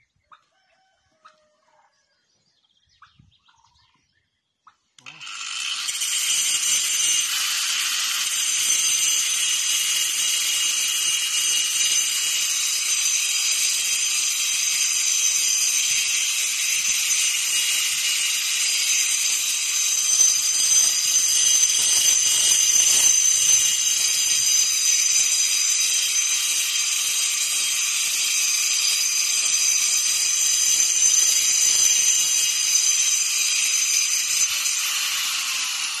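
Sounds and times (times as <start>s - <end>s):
power tool whining on stone: 5.0s - 36.0s.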